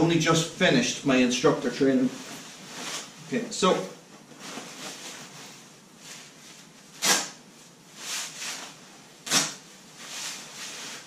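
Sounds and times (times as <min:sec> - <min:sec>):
nylon jacket rustling and swishing: 0:02.0 - 0:11.0.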